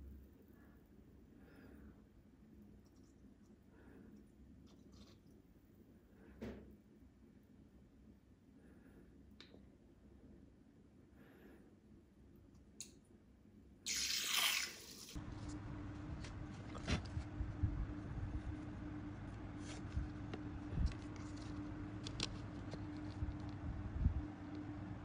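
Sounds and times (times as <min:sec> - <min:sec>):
steady low hum: 0:15.1 - 0:25.0.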